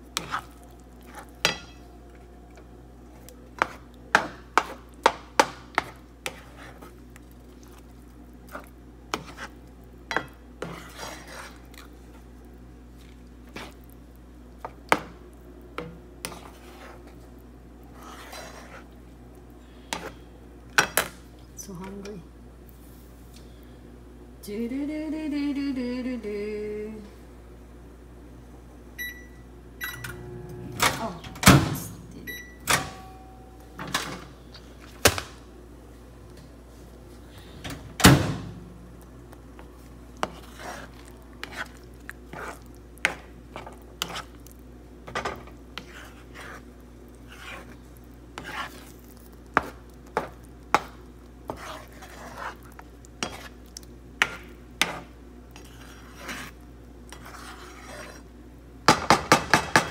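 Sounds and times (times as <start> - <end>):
spatula scraping frying pan: 0.2 - 1.8, 5.8 - 6.9, 9.1 - 11.7, 16.2 - 17.2, 17.9 - 18.9, 40.2 - 44.4, 45.1 - 50.9, 51.5 - 53.6, 54.2 - 58.3.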